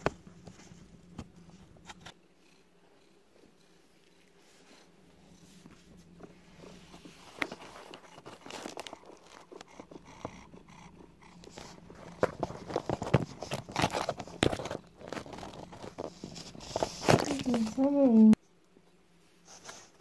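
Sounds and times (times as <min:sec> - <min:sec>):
cat paw scratching cardboard: 0:11.3 - 0:17.7.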